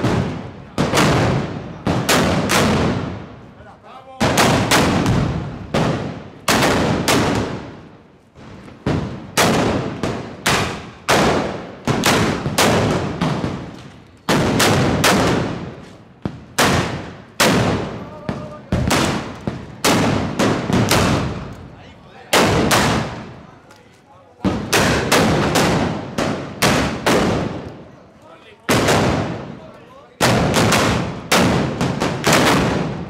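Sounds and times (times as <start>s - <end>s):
ringing echo of shots: 16.3s - 21.5s, 22.2s - 23.3s, 24.4s - 27.7s, 30.2s - 33.0s
guns firing blank shots: 30.2s - 33.0s.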